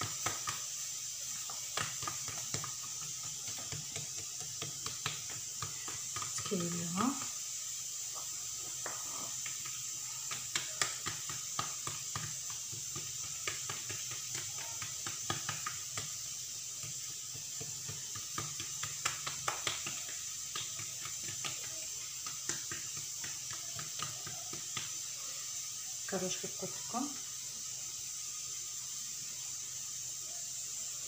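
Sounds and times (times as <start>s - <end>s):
sticky dough clicks and taps: 0.0s - 7.4s, 8.2s - 25.1s
steady hiss: 0.0s - 31.0s.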